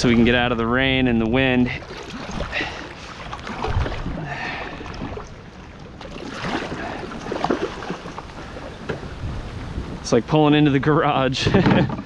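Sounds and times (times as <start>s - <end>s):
paddle splashing through water: 1.7s - 9.8s.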